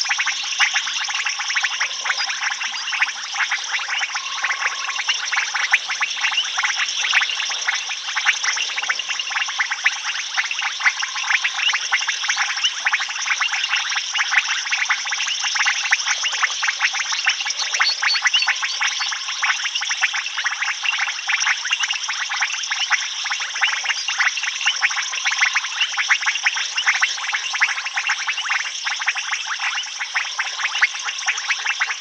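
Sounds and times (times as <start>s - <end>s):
frogs and insects chorus: 0.0s - 32.0s.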